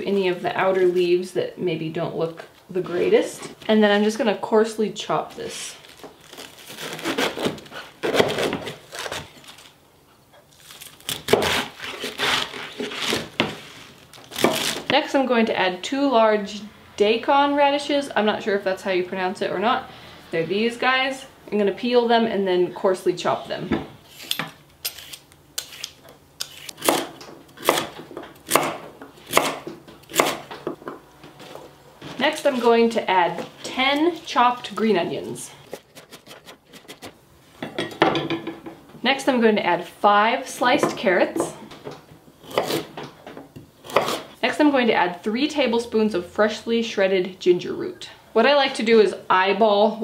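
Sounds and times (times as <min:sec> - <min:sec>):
radish being peeled: 0:05.7 - 0:09.7, 0:10.5 - 0:14.9, 0:24.1 - 0:27.0
knife crunching through cabbage: 0:05.8 - 0:09.7, 0:10.5 - 0:14.9, 0:24.1 - 0:30.5, 0:35.6 - 0:37.2, 0:43.8 - 0:44.4
knife chopping on wooden board: 0:25.6 - 0:30.5, 0:42.4 - 0:42.9, 0:43.8 - 0:44.2.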